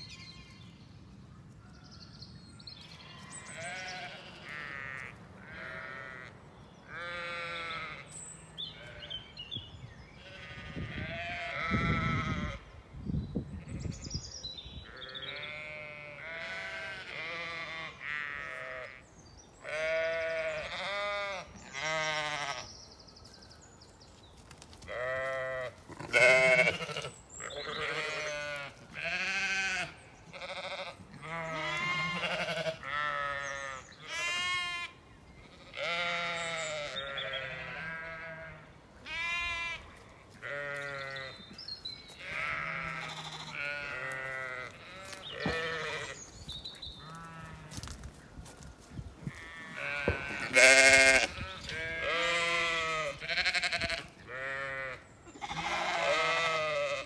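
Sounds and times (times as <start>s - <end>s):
lamb bleating: 3.1s - 6.3s, 6.9s - 8.1s, 10.2s - 12.6s, 15.0s - 19.0s, 19.6s - 22.7s, 24.9s - 34.9s, 35.6s - 41.3s, 42.2s - 46.2s, 49.3s - 57.0s.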